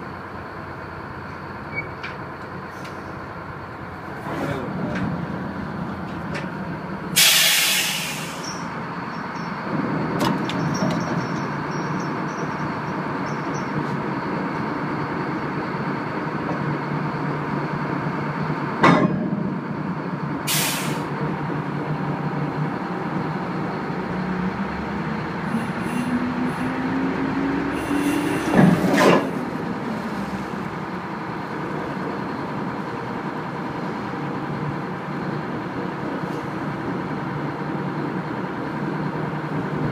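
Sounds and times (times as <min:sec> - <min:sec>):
diesel engines running: 0:00.0 - 0:39.9
short hisses: 0:07.2 - 0:08.6, 0:20.5 - 0:21.1.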